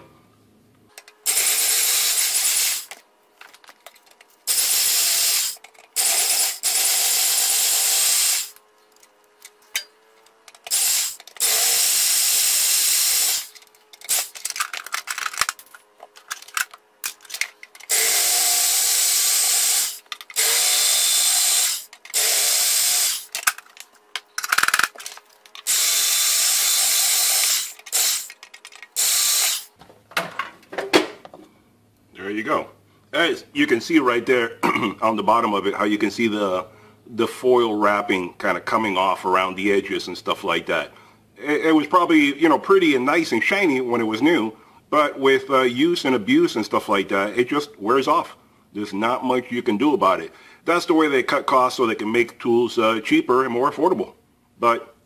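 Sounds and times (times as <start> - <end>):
electric drill drilling metal: 1.0 - 3.0, 4.5 - 8.6, 10.6 - 14.6, 16.6 - 23.8, 24.4 - 29.8
clicks and clatter: 2.8 - 4.3, 13.5 - 17.9, 23.3 - 25.7, 27.8 - 29.0.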